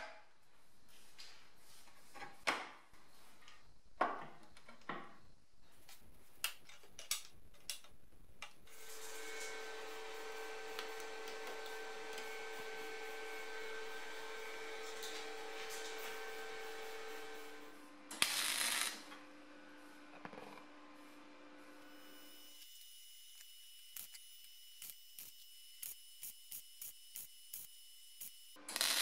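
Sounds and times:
machine hum with hiss: 0:08.7 - 0:29.0.

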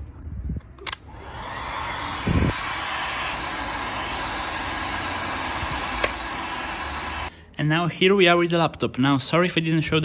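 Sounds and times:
heat gun blowing hot air: 0:00.9 - 0:07.3.

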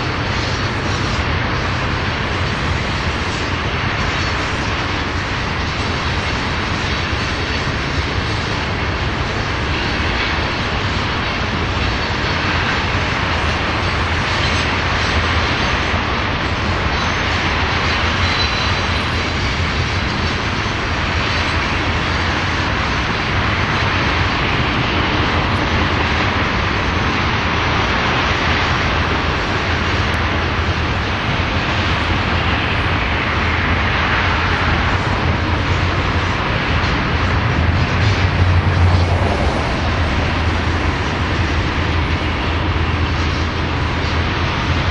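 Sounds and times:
train wheels roaring on rail: 0:00.0 - 0:44.9
low rumble: 0:34.4 - 0:44.9.

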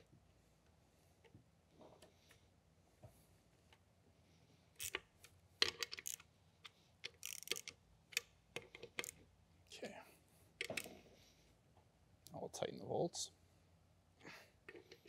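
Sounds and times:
hand tool clicking on bolts: 0:07.1 - 0:09.2.

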